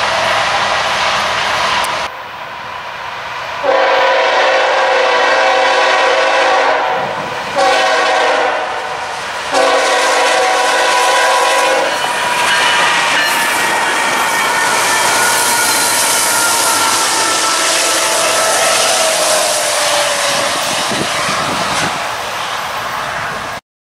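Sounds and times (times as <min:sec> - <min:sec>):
locomotive air horn blasts: 0:03.6 - 0:21.9
locomotives rolling past: 0:08.5 - 0:23.6.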